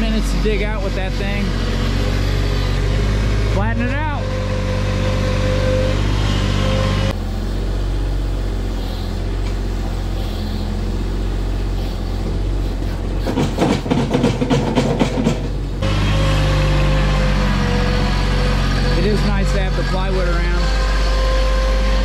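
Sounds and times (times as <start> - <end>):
loader engine running: 0.0 - 22.0
rattling clattering knocks: 13.2 - 15.6.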